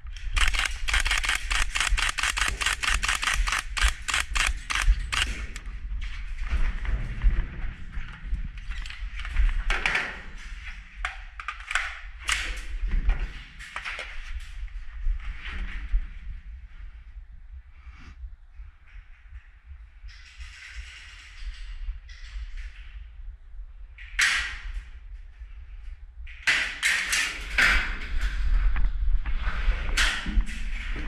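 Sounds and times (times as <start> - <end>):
low rumble: 0.0 - 11.4.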